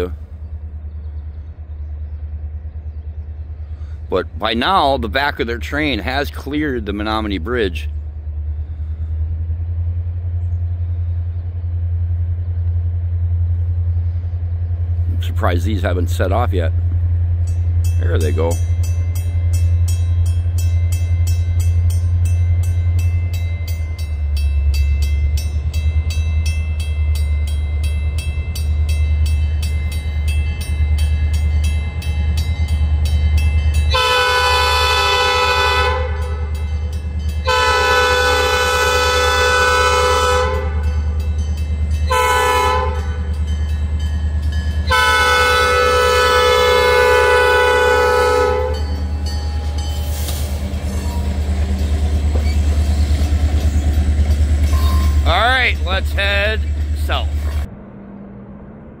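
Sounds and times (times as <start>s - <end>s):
freight train rumble: 0.0s - 59.0s
railroad crossing bells ringing: 13.6s - 57.5s
locomotive air horn: 33.9s - 36.6s, 37.4s - 41.0s, 42.1s - 43.3s, 44.9s - 49.0s.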